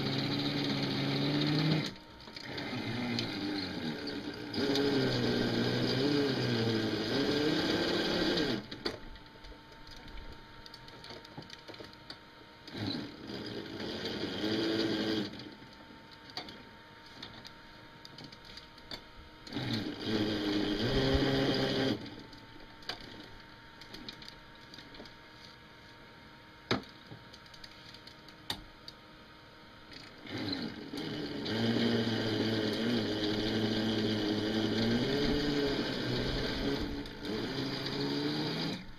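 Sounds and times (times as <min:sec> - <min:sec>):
electric motor whining: 0:00.0 - 0:08.9, 0:12.6 - 0:15.8, 0:18.2 - 0:24.2, 0:29.9 - 0:38.9.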